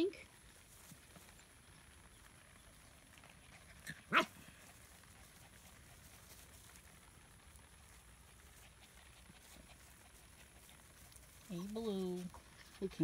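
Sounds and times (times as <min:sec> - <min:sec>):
puppy barking: 0:04.1 - 0:04.4.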